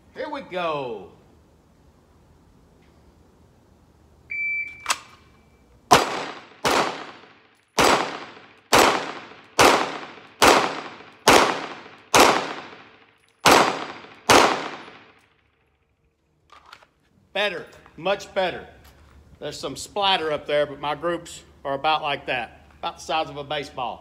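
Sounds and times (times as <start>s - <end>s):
shot timer beep: 4.3s - 4.9s
sharp click: 4.7s - 5.3s
pistol shots with echo: 5.9s - 15.2s.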